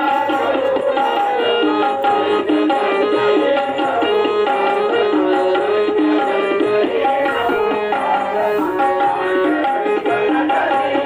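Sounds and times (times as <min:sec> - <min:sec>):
instrumental music with drums: 0:00.0 - 0:11.0.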